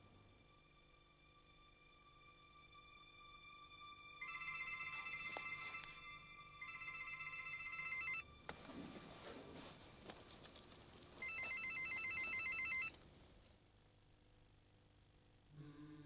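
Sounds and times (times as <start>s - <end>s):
phone ringing with warbling trill: 4.2s - 8.3s, 11.2s - 13.0s
faint rustling: 6.9s - 15.0s.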